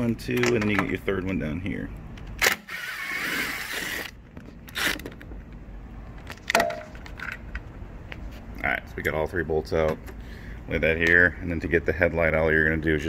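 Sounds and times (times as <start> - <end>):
sharp knocks of handling tools: 6.5 - 7.1.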